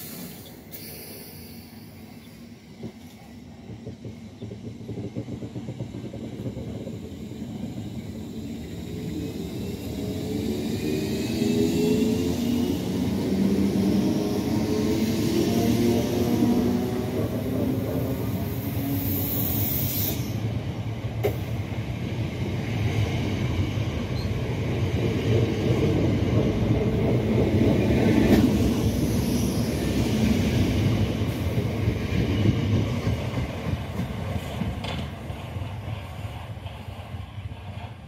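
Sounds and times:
rail joint clicks: 0.0s - 8.2s, 15.4s - 29.2s, 30.1s - 38.0s
train wheels rumbling on rails: 0.0s - 38.0s.

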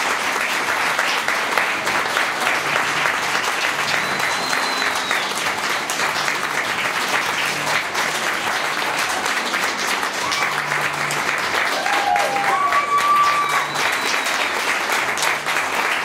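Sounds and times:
audience clapping: 0.0s - 16.0s
high whistle: 4.0s - 5.4s, 12.5s - 14.6s.

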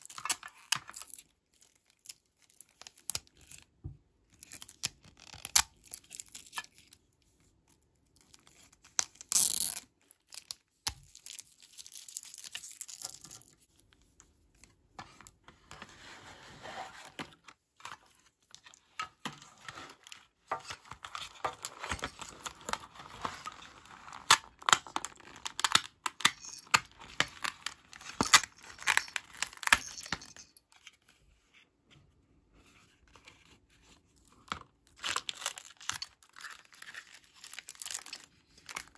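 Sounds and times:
plastic film crinkling and tearing: 20.0s - 29.8s, 34.9s - 38.9s.

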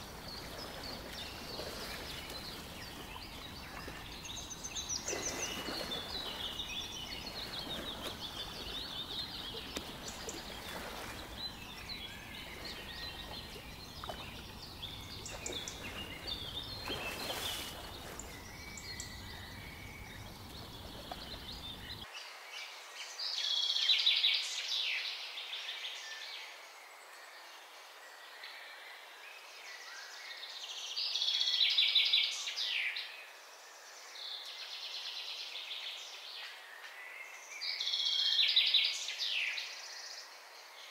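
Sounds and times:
birds chirping and calling: 0.3s - 22.0s.

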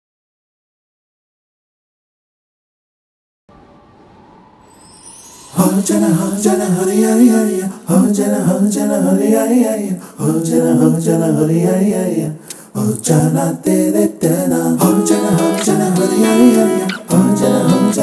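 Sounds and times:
person singing: 5.5s - 18.0s.

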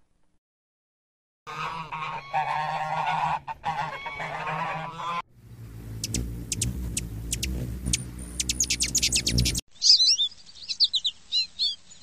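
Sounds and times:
waterfowl honking: 1.5s - 5.2s
low rumble: 5.3s - 9.6s
small bird chirping: 5.5s - 12.0s.

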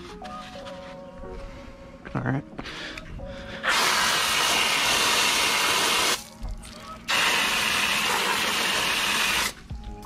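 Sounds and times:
hose nozzle spraying water: 3.6s - 6.2s, 7.1s - 9.6s.

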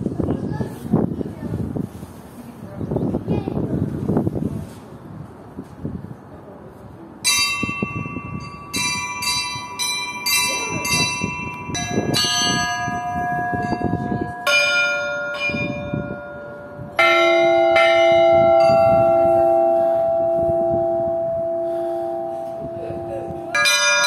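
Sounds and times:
small bells ringing: 7.2s - 24.0s.

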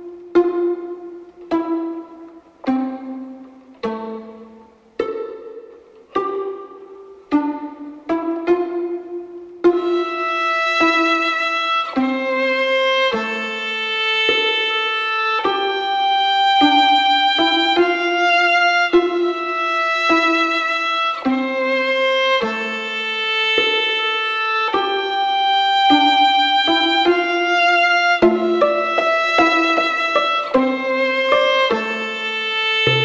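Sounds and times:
slow instrumental melody: 27.9s - 33.0s.

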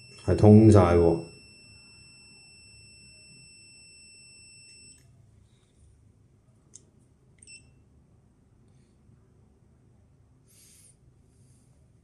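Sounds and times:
multimeter continuity beep: 0.0s - 5.2s, 7.4s - 7.9s.

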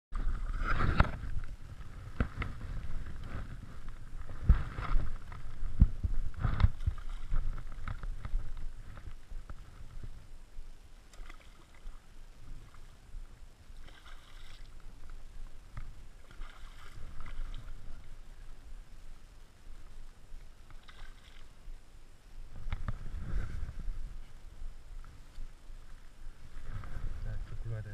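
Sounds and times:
wind rumbling on microphone: 0.1s - 27.9s
water splashing and sloshing: 0.2s - 27.9s.

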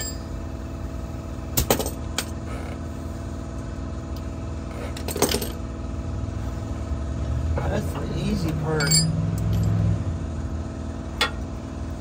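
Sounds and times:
engine-like hum: 0.0s - 12.0s
metal hand tools clinking: 8.8s - 9.8s.

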